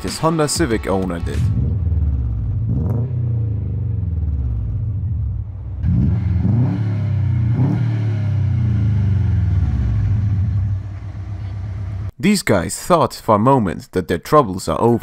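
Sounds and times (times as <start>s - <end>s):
car engine idling with revving: 1.4s - 12.1s.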